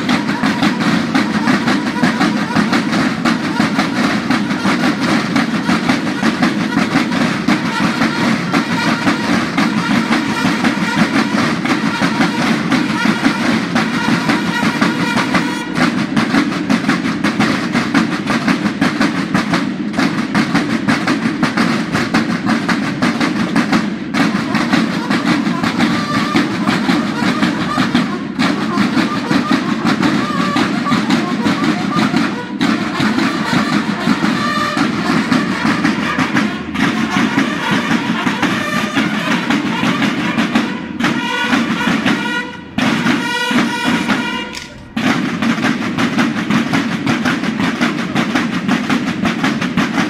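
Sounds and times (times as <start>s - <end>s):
military field drums playing: 0.0s - 50.0s.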